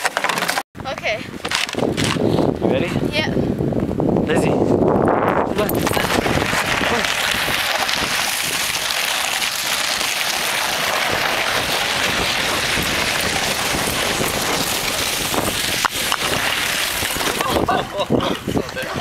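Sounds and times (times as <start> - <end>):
plastic sled scraping on ice: 0.0 - 0.6, 5.5 - 19.0.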